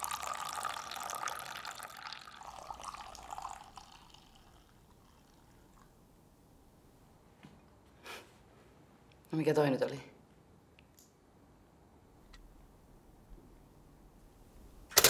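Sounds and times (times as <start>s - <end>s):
coffee pouring into a cup: 0.0s - 5.9s.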